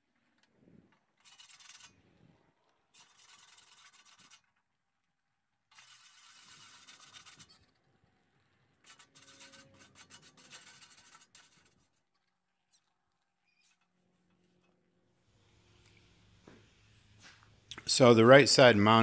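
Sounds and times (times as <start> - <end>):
wire brush scrubbing metal: 1.2 - 2.1, 2.9 - 4.6, 5.7 - 7.8, 8.7 - 13.9.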